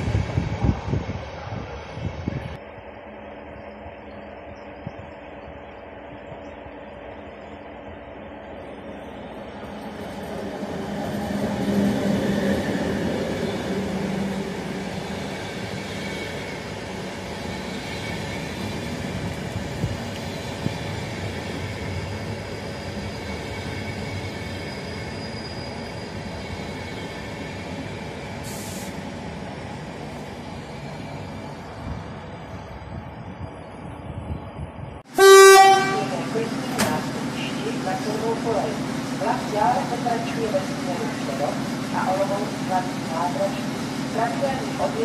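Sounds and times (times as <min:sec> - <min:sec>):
electric locomotive hum: 0:00.0 - 0:45.0
train coaches rumbling past: 0:00.0 - 0:45.0
train wheel squeal: 0:14.9 - 0:28.9.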